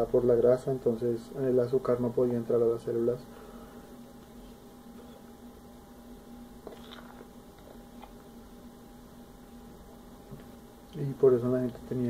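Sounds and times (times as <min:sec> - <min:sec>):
faint electrical hum: 0:00.0 - 0:12.0
person chewing: 0:06.6 - 0:08.3.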